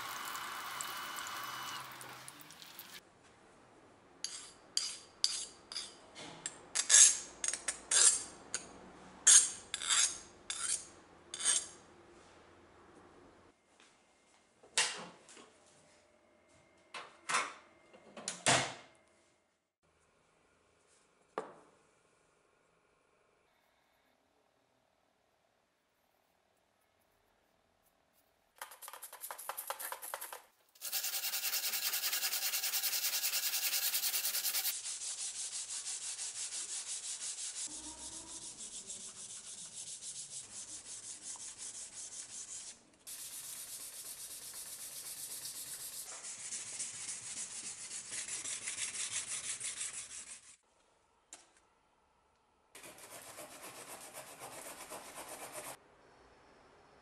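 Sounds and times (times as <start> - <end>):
sandpaper rubbing steel blade: 30.8 - 50.6.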